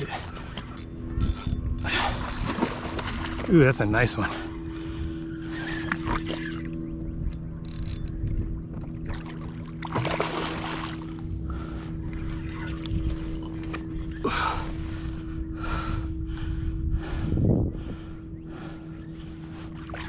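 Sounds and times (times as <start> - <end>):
steady low hum: 0.0 - 20.0
water splashing: 9.1 - 11.2.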